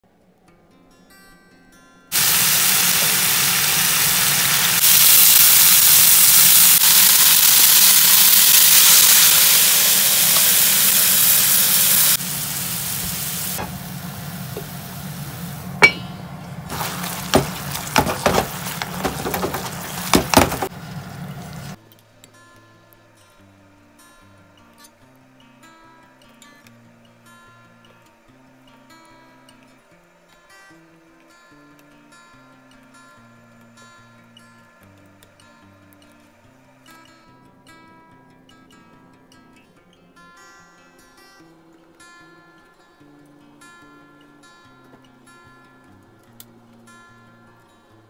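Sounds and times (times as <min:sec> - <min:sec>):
chicken sizzling in a frying pan: 0:02.1 - 0:21.8
utensil clinking against pan: 0:15.6 - 0:20.7.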